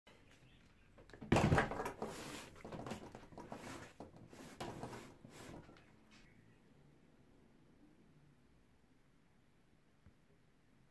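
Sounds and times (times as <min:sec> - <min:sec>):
plastic case knocks and shuffling: 0:01.1 - 0:05.6.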